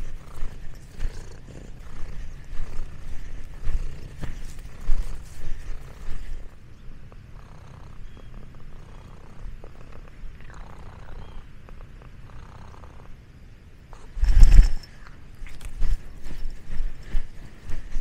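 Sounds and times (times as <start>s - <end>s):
cat purring: 0.0s - 13.2s.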